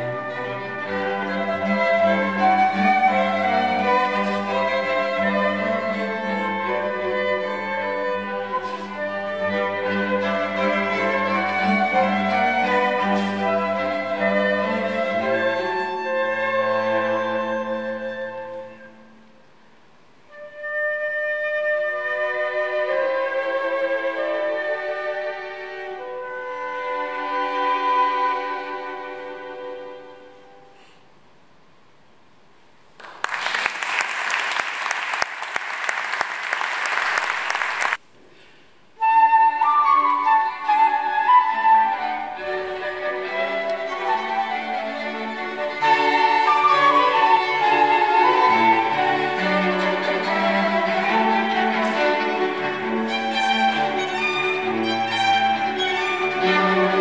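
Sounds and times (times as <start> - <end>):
string and flute chamber music: 0.0 - 30.8, 38.8 - 57.0
audience applause: 33.0 - 38.0.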